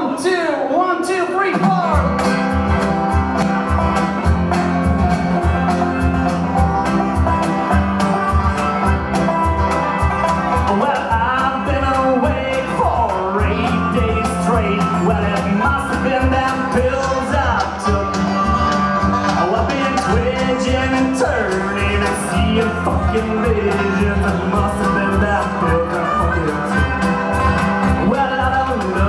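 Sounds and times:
acoustic guitar: 0.0 - 29.0
country band playing: 0.0 - 29.0
banjo: 1.6 - 29.0
electric bass: 1.7 - 29.0
person singing: 9.8 - 29.0.

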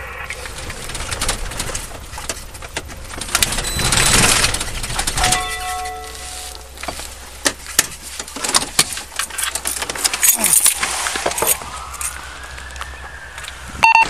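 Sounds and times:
sharp clicks and knocks: 0.3 - 6.2, 6.8 - 12.2
clothing and gear rustling: 1.5 - 13.7.

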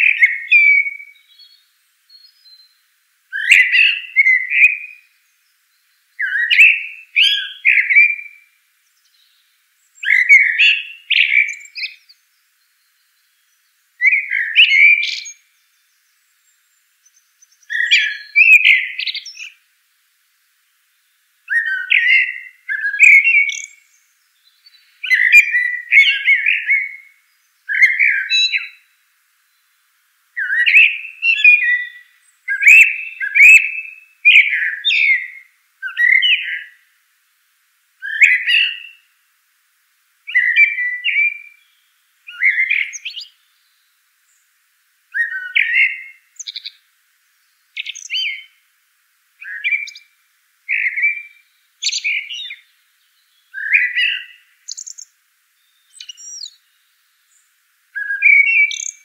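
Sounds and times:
mockingbird singing: 0.0 - 19.6, 21.5 - 28.9, 30.4 - 36.8, 38.0 - 39.1, 40.3 - 43.8, 45.1 - 46.8, 47.7 - 48.6, 49.4 - 57.4, 58.0 - 59.0.

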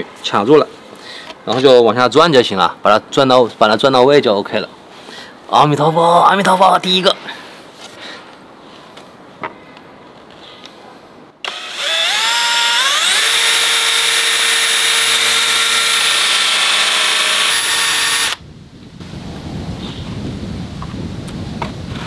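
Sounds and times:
electric drill motor whining: 11.4 - 18.4.

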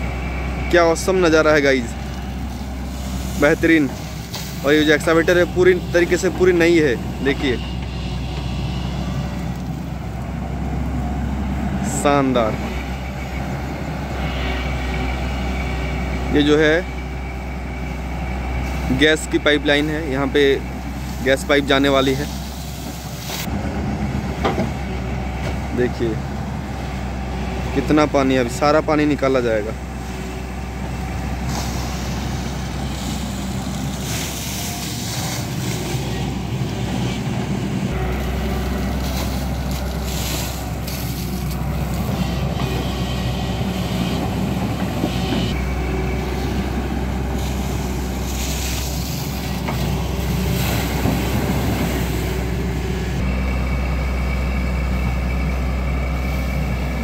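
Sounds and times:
excavator diesel engine under load: 0.0 - 57.0.

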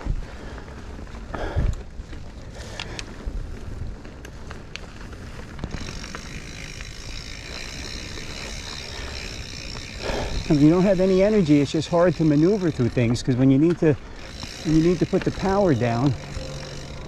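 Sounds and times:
bike clicks and rattles: 0.0 - 17.0
bike tyre rumble on dirt: 0.0 - 17.0
high-pitched buzz: 14.2 - 17.0.

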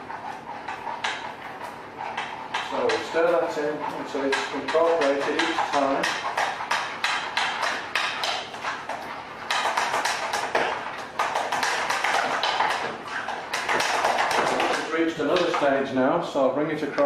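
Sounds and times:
utensil stirring sauce in saucepan: 0.0 - 15.7
utensil scraping and knocking pan: 2.1 - 8.8.

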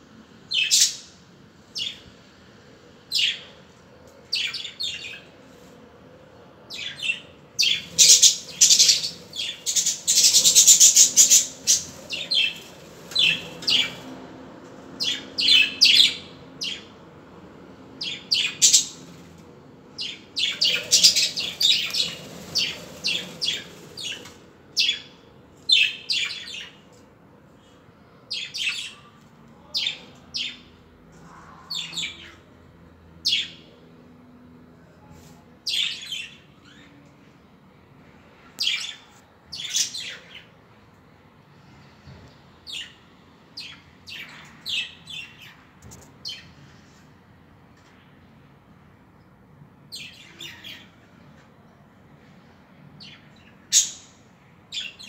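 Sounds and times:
budgerigars chirping: 7.6 - 14.0, 20.0 - 24.2.

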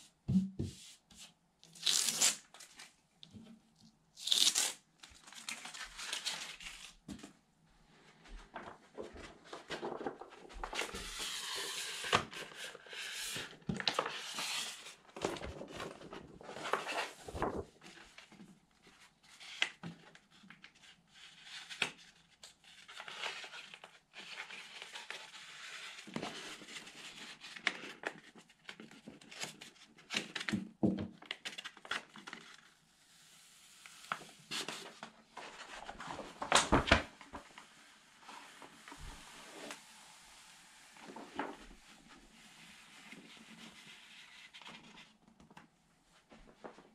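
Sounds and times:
sticker sheet rustling and crinkling: 15.2 - 18.1.

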